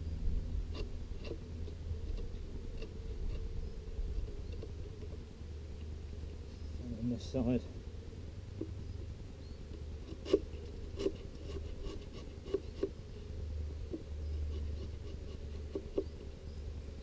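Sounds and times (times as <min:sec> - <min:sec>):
low steady hum: 0:00.0 - 0:17.0
metal tool scraping wood: 0:09.7 - 0:13.0, 0:13.8 - 0:16.4.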